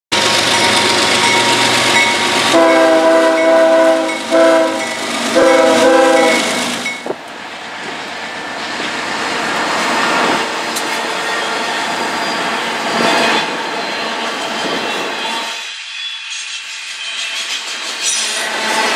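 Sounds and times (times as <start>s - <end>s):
freight train rolling past: 0.1s - 18.9s
locomotive air horn blasts: 2.5s - 6.7s.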